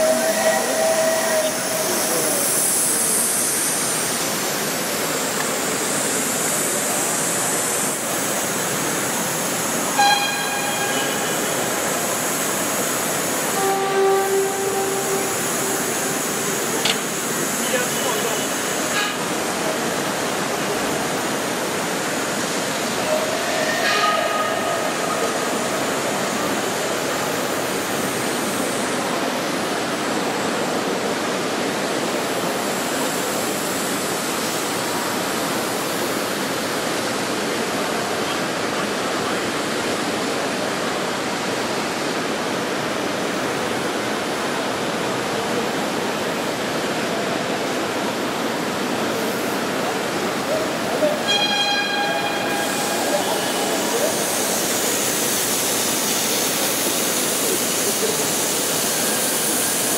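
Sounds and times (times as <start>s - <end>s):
steam hissing: 0.0s - 59.9s
brief pitched tone: 10.0s - 11.6s, 13.6s - 16.6s, 51.2s - 54.0s.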